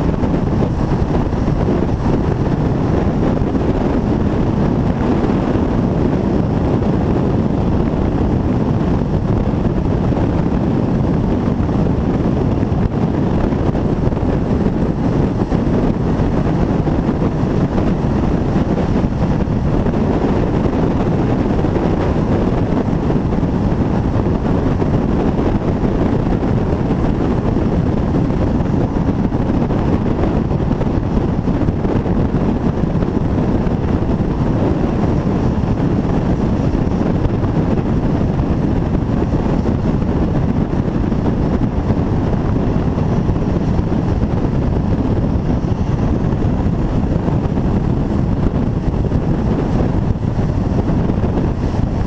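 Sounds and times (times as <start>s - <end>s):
train running rumble: 0.0s - 52.0s
wind buffeting microphone: 0.0s - 52.0s.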